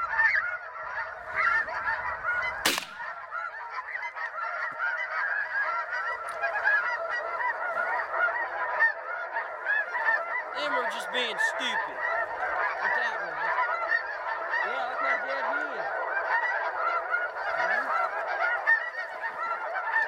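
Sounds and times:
geese honking chorus: 0:00.0 - 0:20.0
sharp crack: 0:02.6 - 0:03.2.

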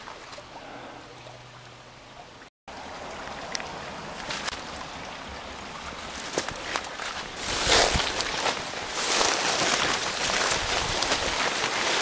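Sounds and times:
creek water running: 0:00.0 - 0:12.0
footsteps through dry leaves: 0:06.1 - 0:12.0.

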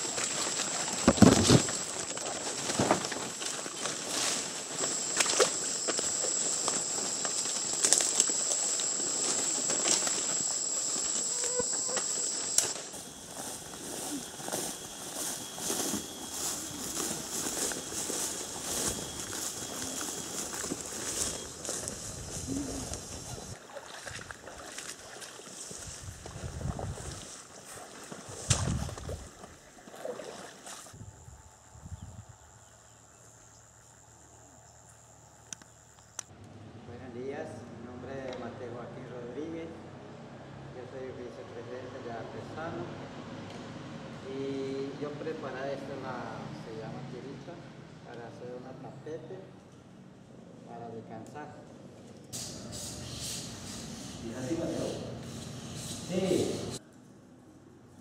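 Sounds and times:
high-pitched insect drone: 0:00.0 - 0:23.6, 0:52.4 - 0:56.8
outdoor background: 0:00.0 - 0:26.2, 0:26.9 - 0:36.9
footsteps through undergrowth: 0:00.0 - 0:30.9
thin high steady tone: 0:04.6 - 0:23.6
footsteps splashing through water: 0:22.9 - 0:30.9.

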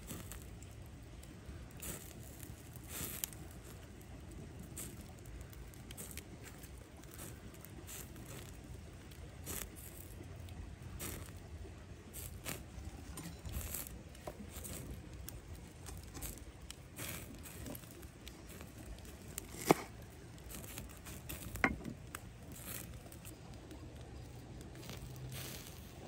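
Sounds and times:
pine needles and twine rustling: 0:00.0 - 0:26.0.

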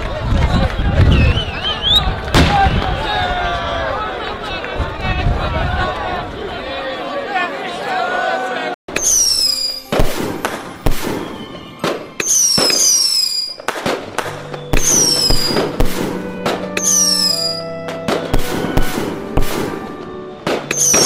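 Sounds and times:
fireworks bangs: 0:08.9 - 0:21.0
whistling firework shells: 0:08.9 - 0:21.0.

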